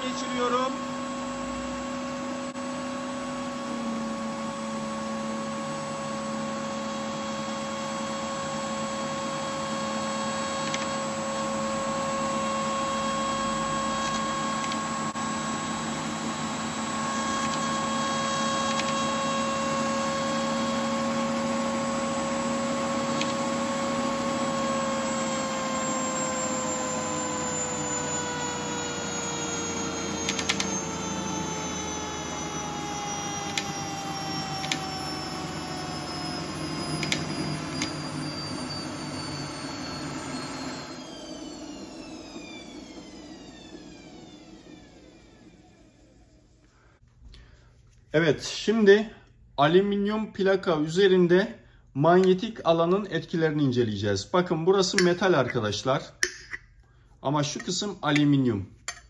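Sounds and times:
spinning disc mechanical whine: 0:00.0 - 0:46.4.

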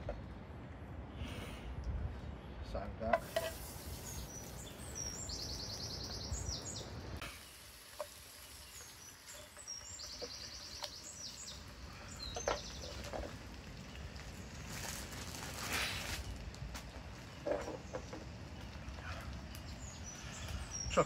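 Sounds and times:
steady low outdoor noise: 0:00.0 - 0:21.0
songbird singing with fast trill: 0:03.7 - 0:07.0, 0:08.4 - 0:13.0.

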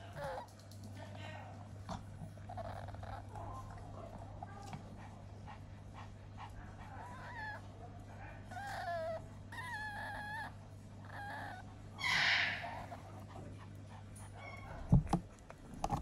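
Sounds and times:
whine-like animal calls: 0:11.1 - 0:13.0.

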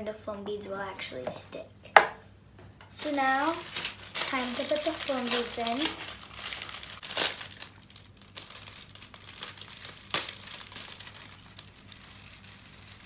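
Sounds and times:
plastic bag crinkling: 0:03.0 - 0:13.0
sharp crackles: 0:03.0 - 0:13.0.

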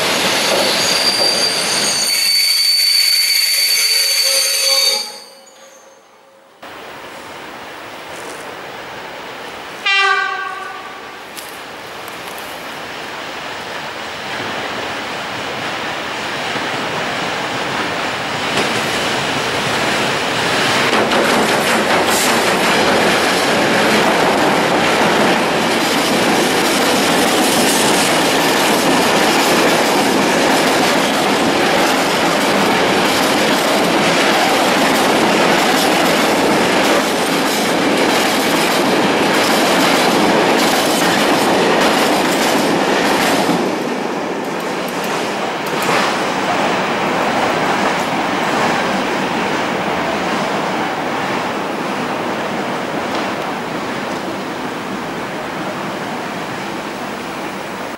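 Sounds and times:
freight train passing: 0:00.0 - 0:57.9
wheels clacking over rail joints: 0:17.7 - 0:46.7.

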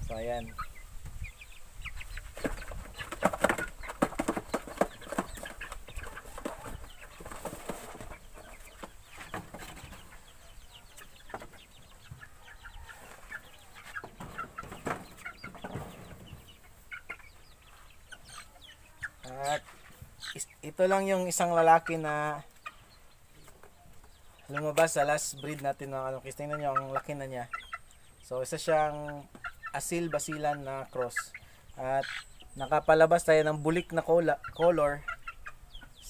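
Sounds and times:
chickens clucking and chirping: 0:00.0 - 0:36.0
wooden knocks and rattles: 0:02.4 - 0:10.1, 0:14.0 - 0:16.5.

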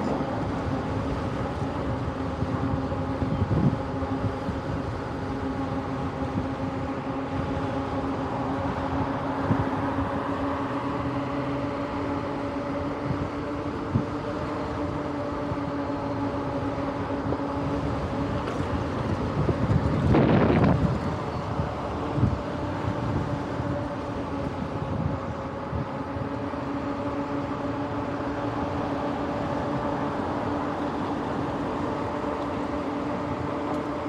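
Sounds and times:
electric bike motor whining: 0:00.0 - 0:34.0
tyre and wind noise: 0:01.5 - 0:04.9, 0:17.2 - 0:27.0.

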